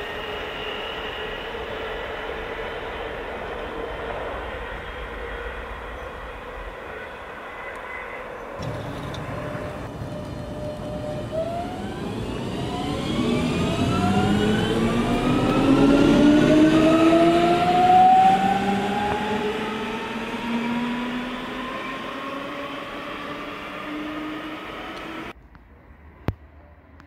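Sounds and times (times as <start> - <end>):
train rail rumble: 0.0 - 26.7
electric train motors whining: 8.6 - 25.3.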